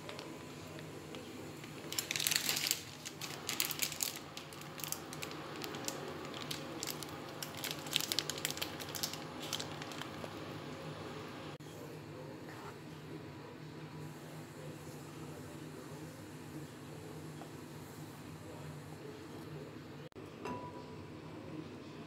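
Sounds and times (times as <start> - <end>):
plastic bag crinkling: 1.1 - 10.4.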